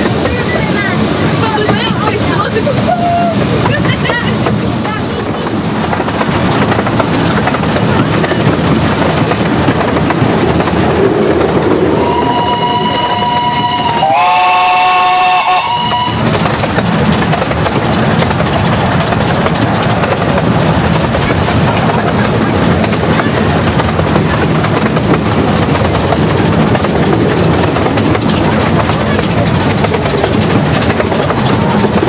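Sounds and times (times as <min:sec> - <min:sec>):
steam train running: 0:00.0 - 0:32.0
steam locomotive whistle: 0:12.0 - 0:16.3.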